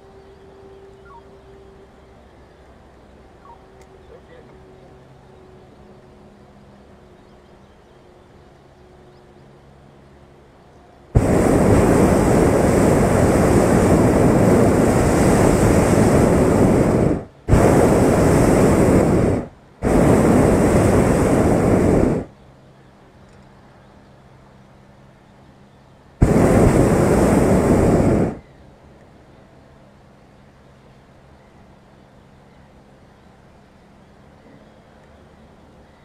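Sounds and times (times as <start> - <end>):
propane burner blasts: 11.1 - 22.3, 26.2 - 28.5.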